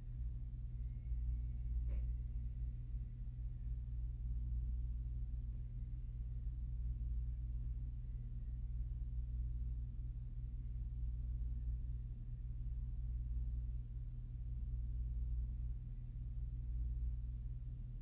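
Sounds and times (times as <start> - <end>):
low hum: 0.0 - 18.0.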